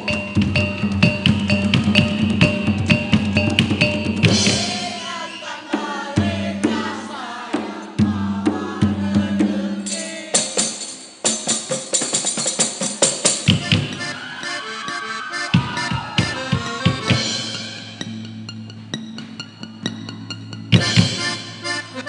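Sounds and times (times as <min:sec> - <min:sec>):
live ensemble music: 0:00.0 - 0:06.9, 0:10.5 - 0:22.0
drum strikes: 0:00.0 - 0:14.2, 0:15.5 - 0:21.8
tambourine strikes: 0:09.9 - 0:14.1.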